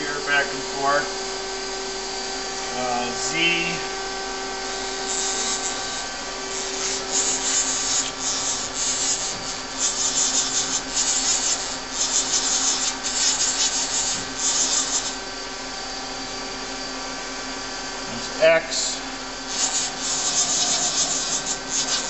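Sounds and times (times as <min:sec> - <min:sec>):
machine hum: 0:00.0 - 0:12.1
machine slide rubbing hiss: 0:19.5 - 0:22.0.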